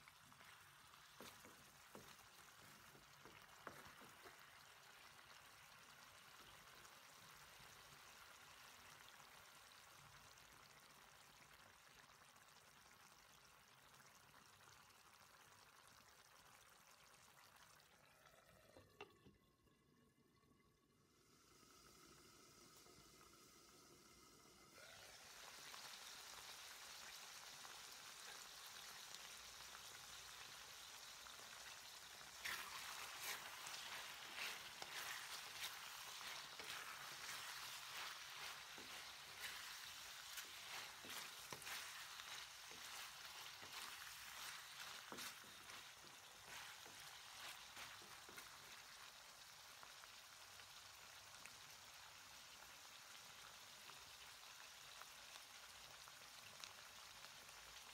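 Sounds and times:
food sizzling in a wok: 0.0 - 19.0, 21.0 - 57.9
spatula scraping a wok: 32.4 - 48.4.

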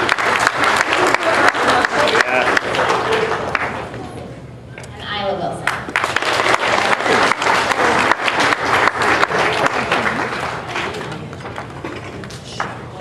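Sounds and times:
audience applauding: 0.0 - 4.0, 5.6 - 12.0.

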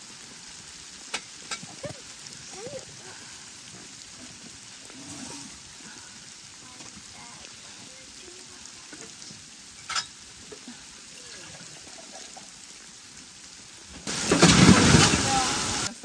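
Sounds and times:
freezing rain pattering on tent: 0.0 - 16.0
loud crashing rush: 14.1 - 15.9.

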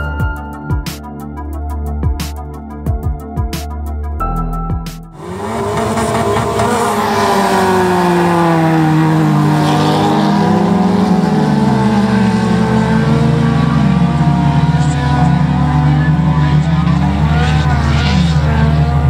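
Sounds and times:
race car engines revving: 5.2 - 19.0.

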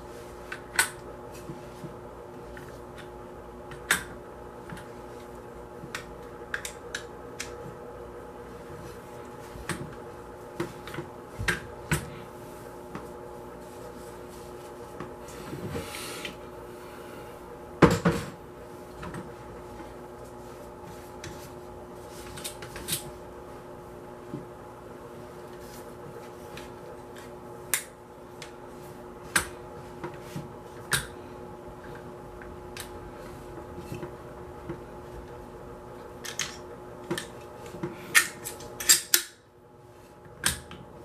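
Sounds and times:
faint steady hum: 0.0 - 41.0.

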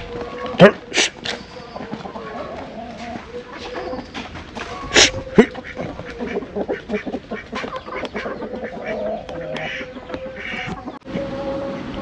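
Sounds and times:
poultry calling: 0.0 - 12.0.

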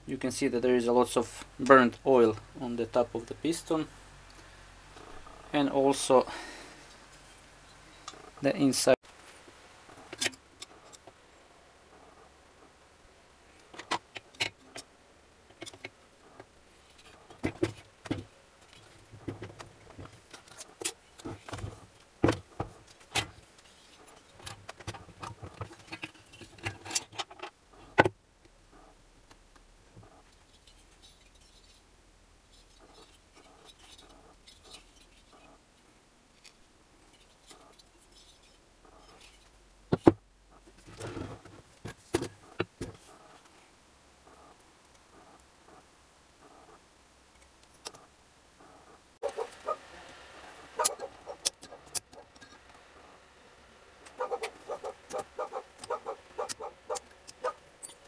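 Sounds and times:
metal tools clinking: 57.3 - 58.0.

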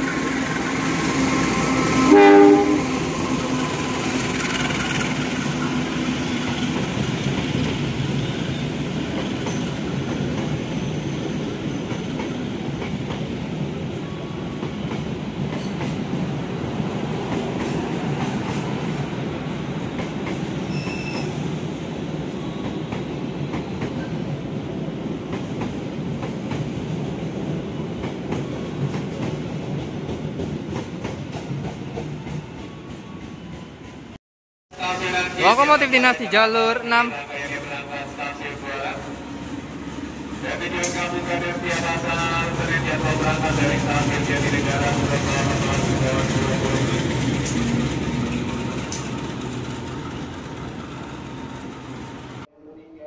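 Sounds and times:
locomotive engine: 0.0 - 7.6
train horn blast: 1.0 - 3.1.

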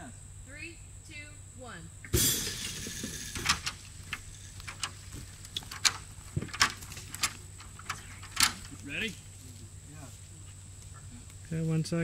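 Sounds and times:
sharp clicks and knocks: 2.1 - 8.8.

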